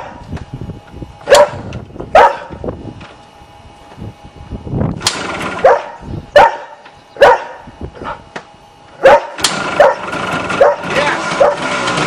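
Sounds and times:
dog barking: 0:01.3 - 0:02.6, 0:05.6 - 0:07.7, 0:09.0 - 0:11.7.

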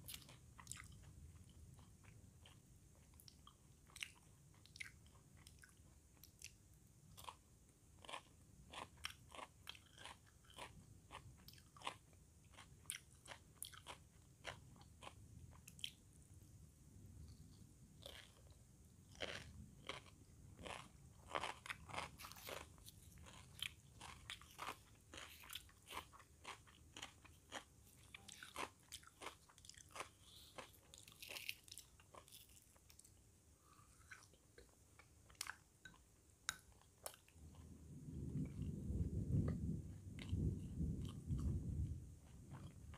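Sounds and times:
crunchy wet chewing: 0:08.0 - 0:16.0, 0:18.0 - 0:34.7.

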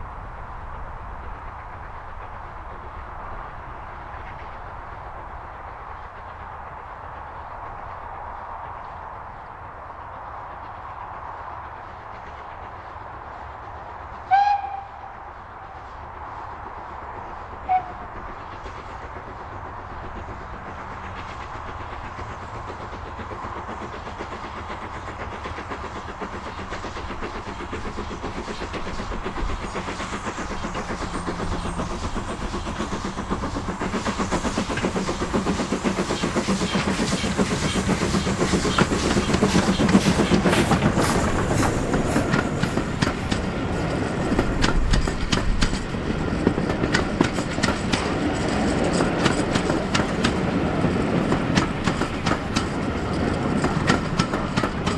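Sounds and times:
steam locomotive hauling train: 0:00.0 - 0:54.9
wheels clicking over rail joints: 0:17.7 - 0:54.9.

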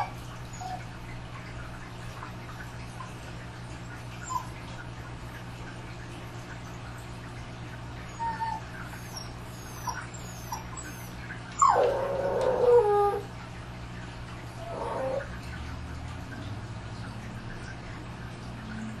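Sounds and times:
dog whining howl: 0:00.0 - 0:00.8, 0:08.1 - 0:13.3, 0:14.6 - 0:15.4.

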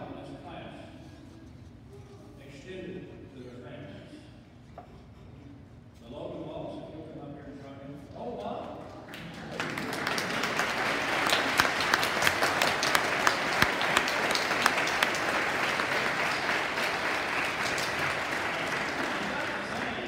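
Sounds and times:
audience applauding: 0:09.1 - 0:20.0
loud close claps: 0:09.1 - 0:20.0.

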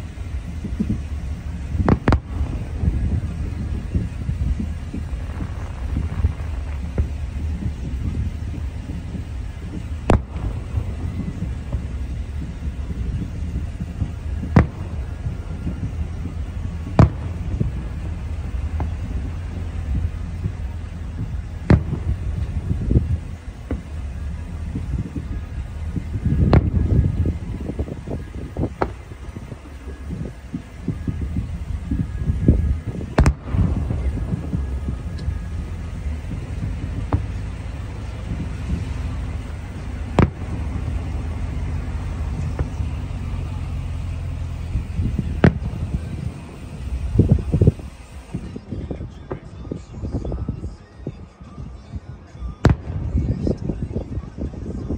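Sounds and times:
distant firework booms: 0:00.0 - 0:48.6
low rumble: 0:00.0 - 0:54.9.

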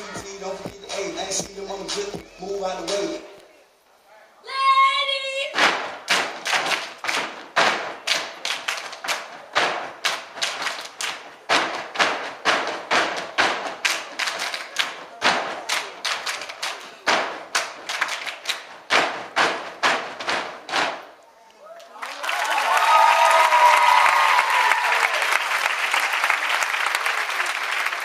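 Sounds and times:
foot stomps: 0:05.6 - 0:08.4, 0:09.5 - 0:14.2, 0:17.0 - 0:17.9, 0:18.6 - 0:21.1
hand claps: 0:05.6 - 0:21.0.

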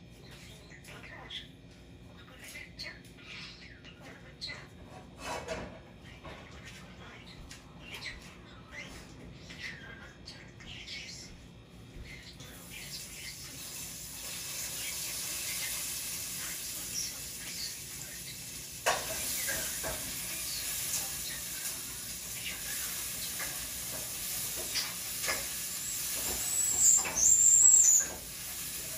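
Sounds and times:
starling singing clicks and whistles: 0:25.9 - 0:28.2.

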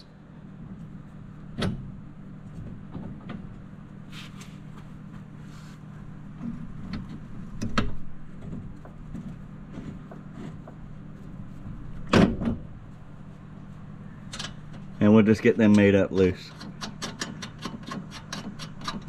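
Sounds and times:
steady low hum: 0:00.0 - 0:19.0
metal bolts clicking and clinking: 0:14.3 - 0:14.9, 0:15.6 - 0:19.0.

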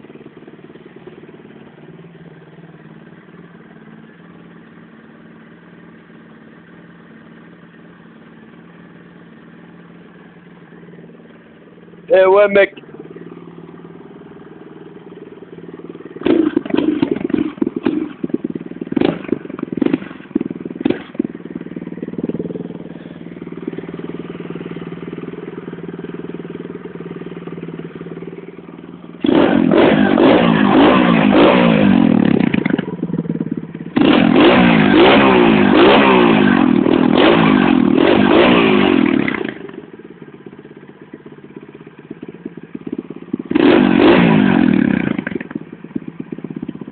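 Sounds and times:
dirt bike engine revving: 0:12.1 - 0:39.8, 0:42.7 - 0:45.7.

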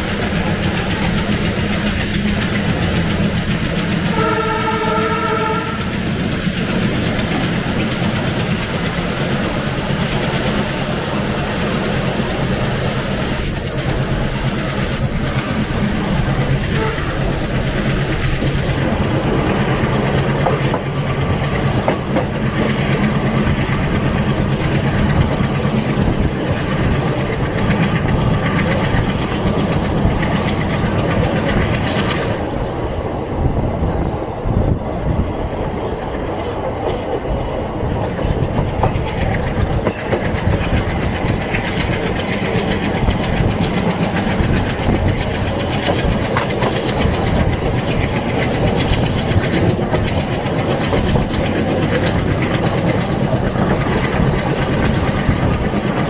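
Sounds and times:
train wheels clattering over rail joints: 0:00.0 - 0:56.0.

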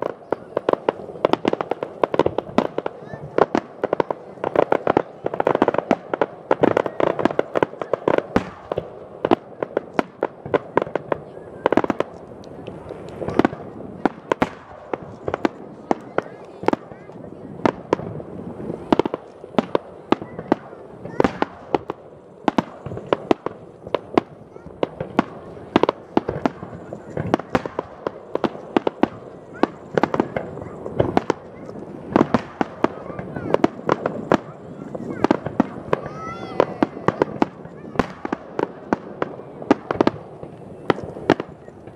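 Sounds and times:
fireworks bursting: 0:00.0 - 0:41.9.

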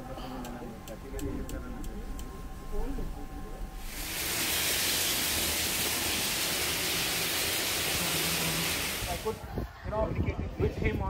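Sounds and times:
steady rushing hiss: 0:03.7 - 0:09.6.

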